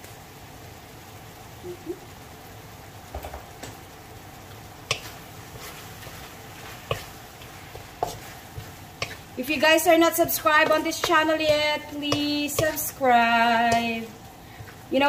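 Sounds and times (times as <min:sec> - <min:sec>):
faint pan hiss: 0:00.0 - 0:15.0
wooden spatula scraping wok: 0:04.8 - 0:15.0.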